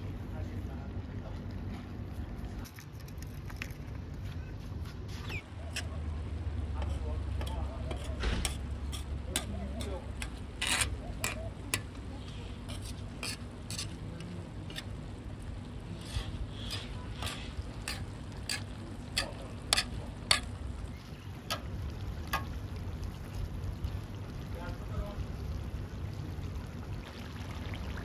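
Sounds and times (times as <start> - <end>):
metal skimmer scraping a pot: 5.2 - 6.0, 6.8 - 11.9, 12.6 - 15.0, 15.9 - 20.6
soft sizzle from pot: 5.2 - 28.0.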